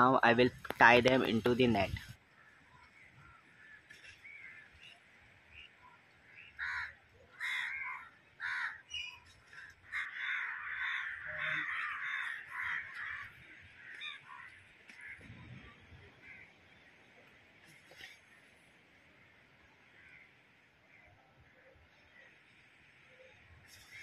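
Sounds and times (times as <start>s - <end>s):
crows cawing: 6.3s - 15.3s, 16.2s - 16.6s, 19.9s - 20.4s.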